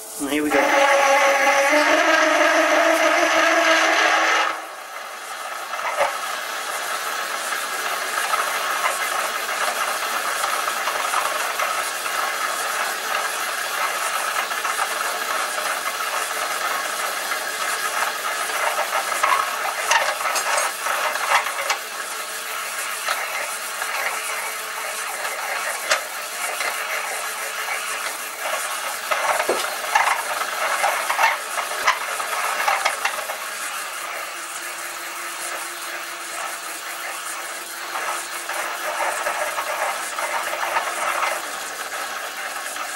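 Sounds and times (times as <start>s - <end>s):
reamer scraping metal: 0.0s - 42.9s
sharp scrapes and clicks: 16.7s - 22.0s, 22.9s - 33.4s, 36.3s - 42.9s.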